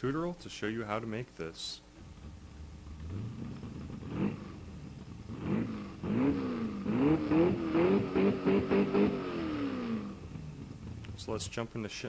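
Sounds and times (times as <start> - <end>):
car engine revving: 2.0 - 11.3.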